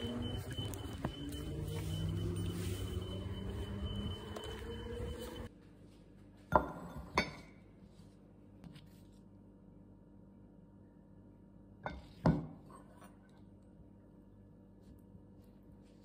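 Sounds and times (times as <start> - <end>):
vehicle engine humming: 0.0 - 5.5
crockery clinking on countertop: 6.5 - 7.6.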